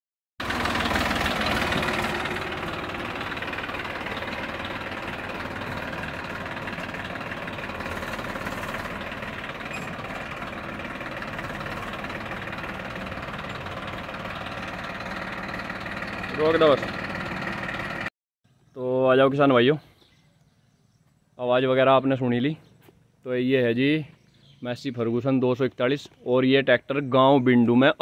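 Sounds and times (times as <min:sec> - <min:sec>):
tractor diesel engine running: 0:00.4 - 0:18.1.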